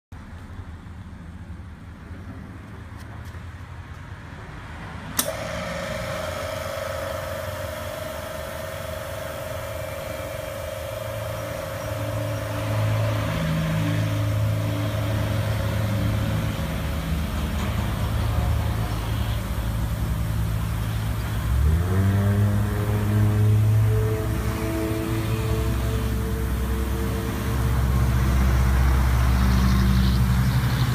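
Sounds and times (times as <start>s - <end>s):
switch click: 5.2s - 5.4s
misting pump whining: 5.2s - 30.9s
deep uneven hum: 5.3s - 30.9s.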